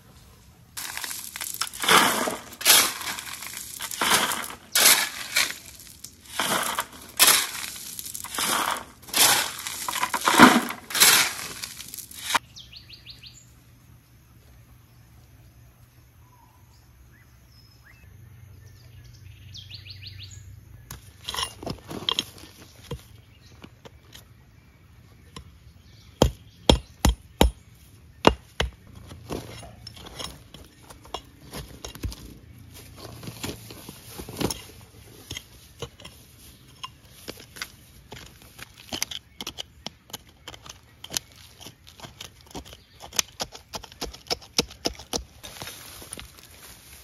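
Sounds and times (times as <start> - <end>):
hatchet chopping into soil: 26.2 - 27.6, 28.2 - 28.9.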